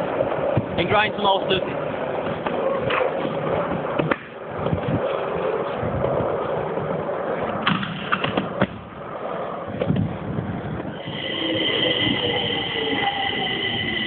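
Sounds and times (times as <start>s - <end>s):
skate wheels rolling on hard floor: 0.0s - 14.0s
train wheels squealing: 10.9s - 14.0s.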